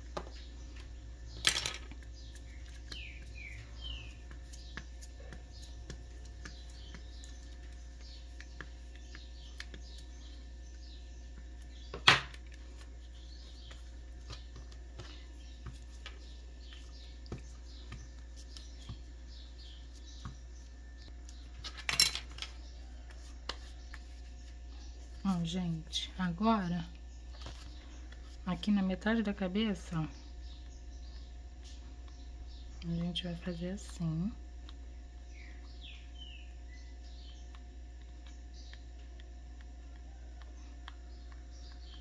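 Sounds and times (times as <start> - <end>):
steady electrical hum: 0.0 - 42.0
faint bird chirps: 2.2 - 12.0, 35.2 - 39.1
small ticks: 36.8 - 42.0.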